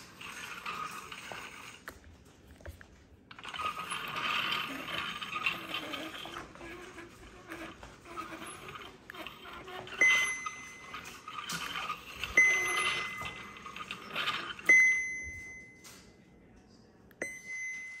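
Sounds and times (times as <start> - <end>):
small bell dinging: 17.2 - 18.0.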